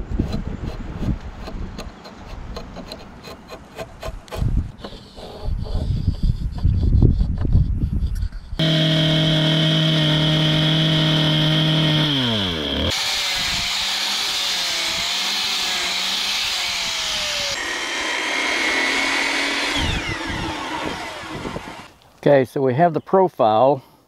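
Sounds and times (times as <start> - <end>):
angle grinder sanding wood: 8.6 - 21.9
circular saw running: 8.6 - 21.9
motor whining: 8.6 - 21.9.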